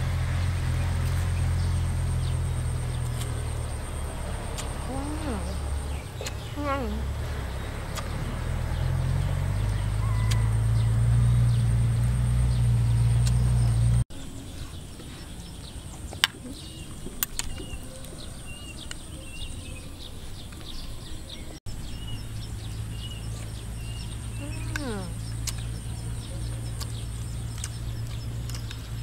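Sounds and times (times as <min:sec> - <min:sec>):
low steady rumble: 0:00.0 - 0:16.0
small birds chirping: 0:00.4 - 0:29.0.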